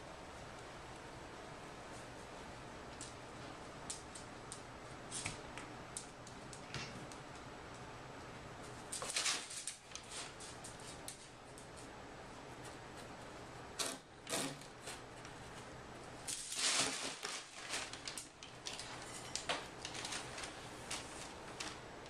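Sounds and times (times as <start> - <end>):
packing paper rustling and crinkling: 8.9 - 11.3, 16.2 - 22.0.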